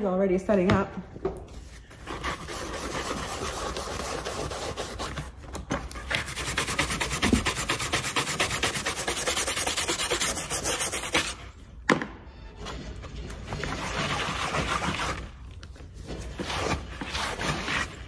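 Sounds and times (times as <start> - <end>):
stiff brush scrubbing: 6.2 - 11.4.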